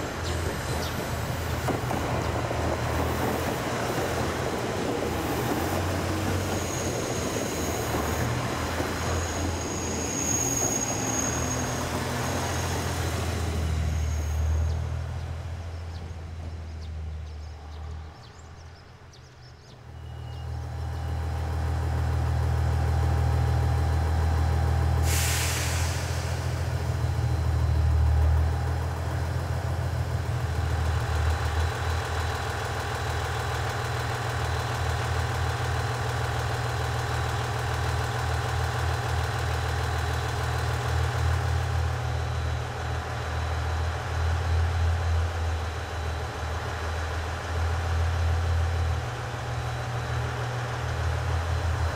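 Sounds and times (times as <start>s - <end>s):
train diesel engine idling: 0.0s - 51.9s
compressed air hissing: 25.0s - 26.8s.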